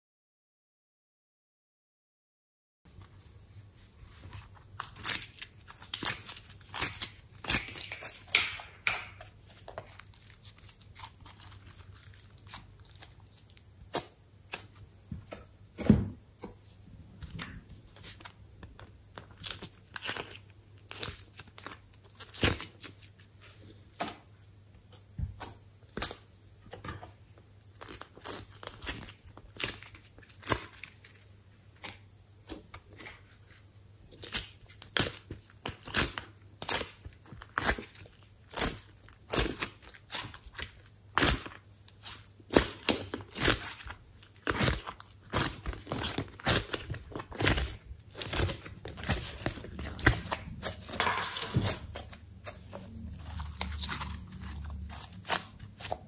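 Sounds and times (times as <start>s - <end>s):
sticky slime clicks and crackles: 4.8s - 15.5s.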